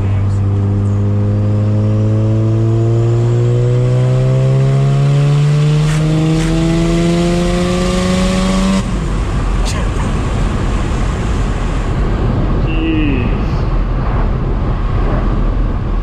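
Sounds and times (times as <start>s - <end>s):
rotary engine pulling through gear: 3.8s - 8.9s.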